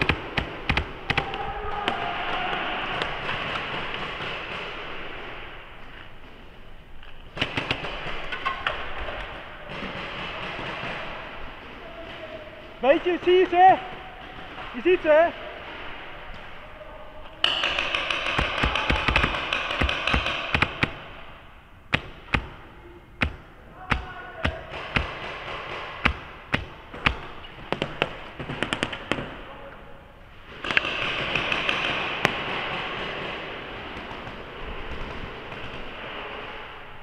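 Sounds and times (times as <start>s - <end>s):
paintball markers firing: 0.0s - 1.4s, 17.4s - 21.2s, 23.2s - 29.4s, 30.5s - 35.9s.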